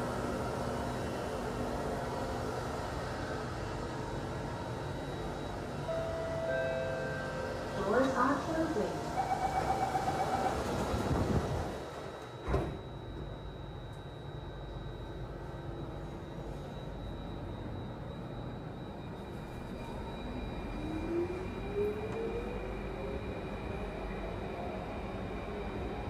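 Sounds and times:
train motor whine: 0:00.0 - 0:26.0
train rumble and hum: 0:00.0 - 0:26.0
train doors shutting: 0:05.8 - 0:13.4.

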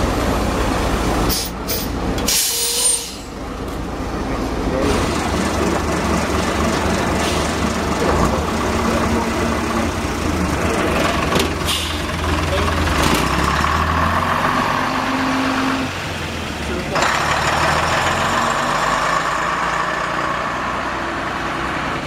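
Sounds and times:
bus diesel engines passing: 0:00.0 - 0:22.0
short air hisses: 0:01.3 - 0:03.3.

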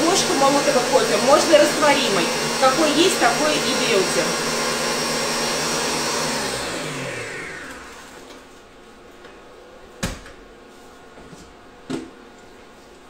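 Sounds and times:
stand mixer motor winding down: 0:00.0 - 0:08.3.

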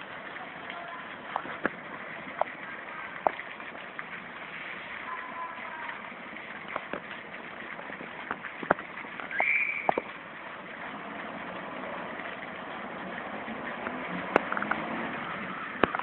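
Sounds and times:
road and engine noise: 0:10.2 - 0:16.0.

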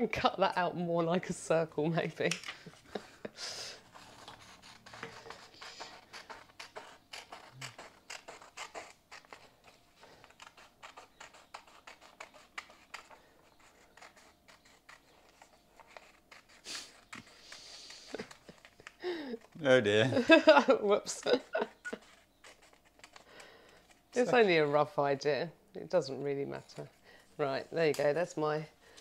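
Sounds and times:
scissors snipping paper: 0:03.8 - 0:19.6, 0:21.1 - 0:23.3.

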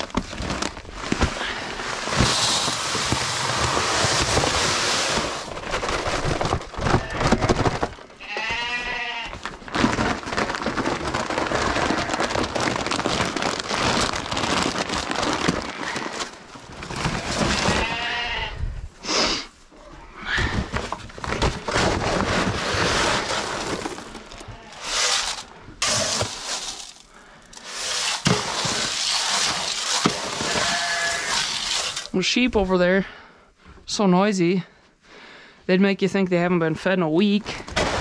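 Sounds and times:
grain feed pouring into metal cans: 0:01.8 - 0:06.4, 0:21.7 - 0:32.2
sheep bleating: 0:08.2 - 0:09.4, 0:30.4 - 0:31.4.

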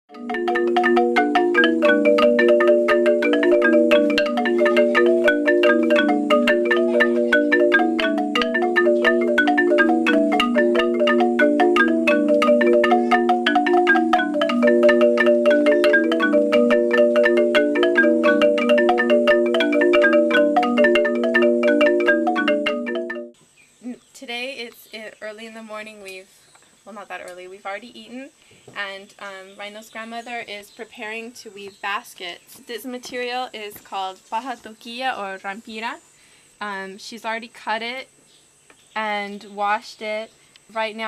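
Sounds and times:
wooden marimba played with mallets: 0:00.1 - 0:23.4.

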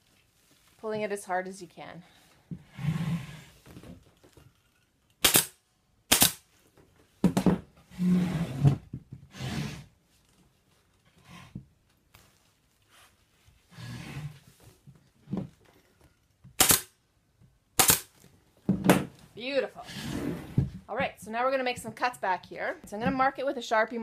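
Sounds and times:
pneumatic staple gun firing: 0:05.2 - 0:06.4, 0:16.6 - 0:16.9, 0:17.8 - 0:18.1.

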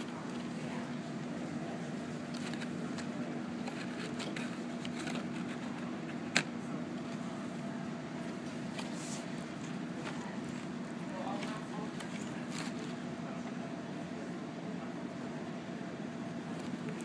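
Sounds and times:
stiff paper rustling: 0:00.0 - 0:07.6, 0:08.2 - 0:13.1
low room hum: 0:00.0 - 0:17.0.

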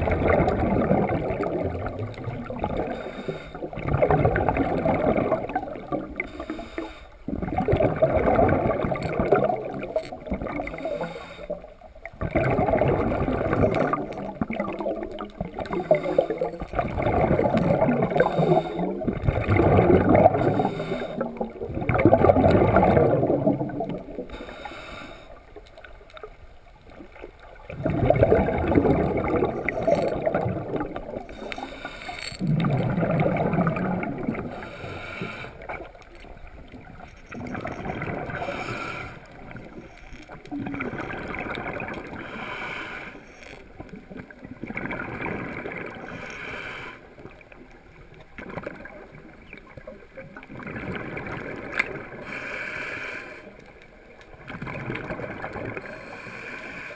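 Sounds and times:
exhaled bubbles bursting: 0:00.0 - 0:06.6, 0:07.2 - 0:24.5, 0:27.0 - 0:34.7, 0:35.6 - 0:38.8, 0:39.4 - 0:42.3, 0:43.8 - 0:46.2, 0:47.3 - 0:52.2, 0:54.3 - 0:56.0
inhalation hiss: 0:03.0 - 0:03.6, 0:06.3 - 0:07.2, 0:10.8 - 0:11.6, 0:18.2 - 0:19.0, 0:20.4 - 0:21.3, 0:24.3 - 0:25.4, 0:31.4 - 0:32.4, 0:34.6 - 0:35.7, 0:38.4 - 0:39.3, 0:42.2 - 0:43.5, 0:46.1 - 0:47.1, 0:52.2 - 0:53.6, 0:55.9 - 0:56.9.

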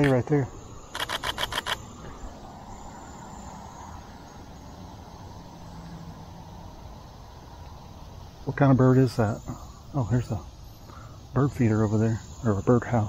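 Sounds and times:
camera shutter clicks: 0:00.0 - 0:00.2, 0:00.9 - 0:01.8.

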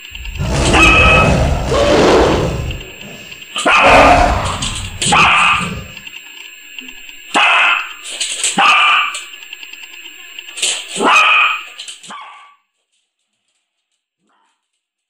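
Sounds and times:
small dog barking: 0:07.4 - 0:07.8, 0:08.6 - 0:09.1, 0:11.0 - 0:12.5.

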